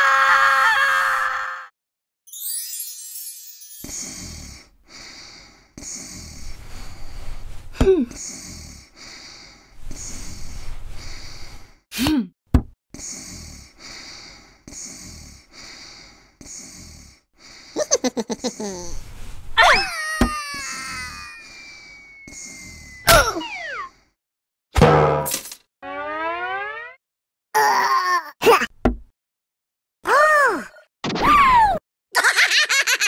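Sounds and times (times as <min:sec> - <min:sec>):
rapid giggling laugh: 0:17.8 - 0:18.9, 0:32.2 - 0:33.0
cartoon cat squeals: 0:19.6 - 0:21.4, 0:23.0 - 0:23.9, 0:31.2 - 0:31.8.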